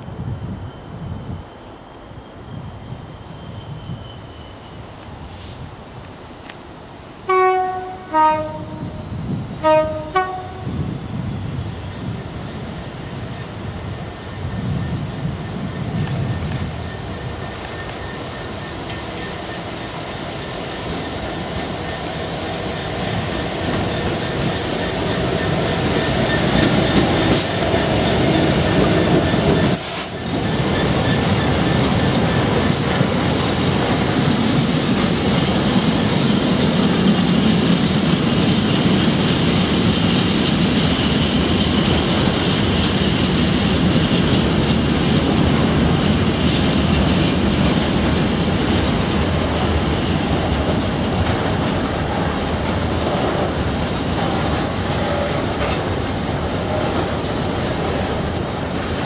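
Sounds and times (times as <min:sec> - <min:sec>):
diesel locomotive engine: 0:00.0 - 0:59.0
train wheel and rail noise: 0:00.0 - 0:59.0
wheels clicking over rail joints: 0:15.9 - 0:59.0.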